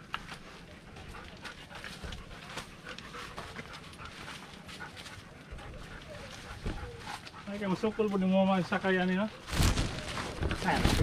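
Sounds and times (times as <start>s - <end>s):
dog panting: 0.3s - 9.2s.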